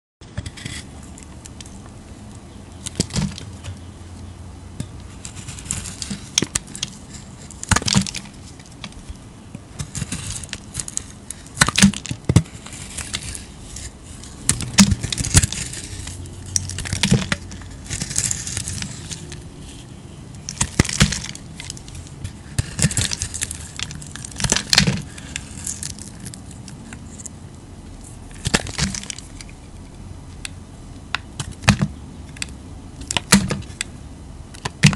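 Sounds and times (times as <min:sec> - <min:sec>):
knife crunching through soap: 0:09.8 - 0:27.3.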